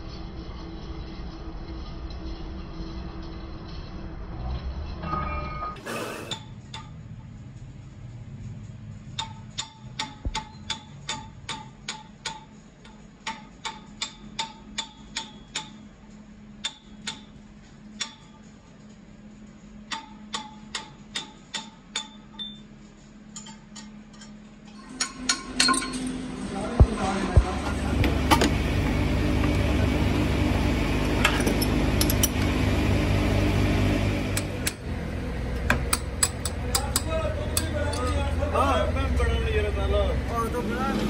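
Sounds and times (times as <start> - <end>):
hammer tapping chisel on steel: 9.2 - 15.8, 19.9 - 22.3, 35.6 - 38.3.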